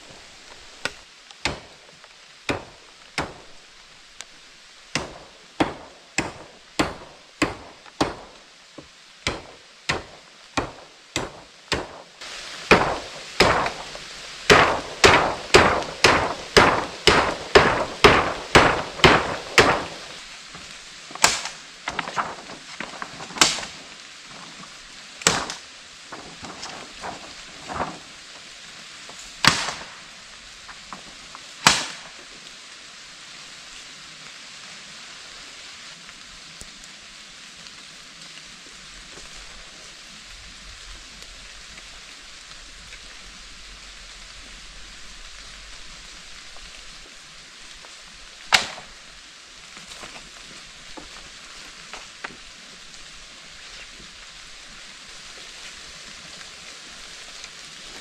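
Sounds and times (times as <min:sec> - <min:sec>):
hand tool striking wood: 0:02.5 - 0:03.5, 0:04.9 - 0:08.4, 0:09.2 - 0:12.1, 0:12.7 - 0:20.1, 0:21.2 - 0:22.2.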